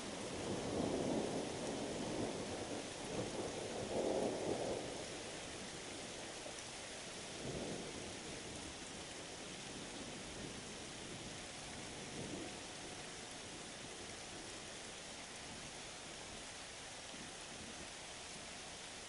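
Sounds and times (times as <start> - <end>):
thunder rumbling: 0.0 - 5.4
rain hissing: 0.0 - 19.0.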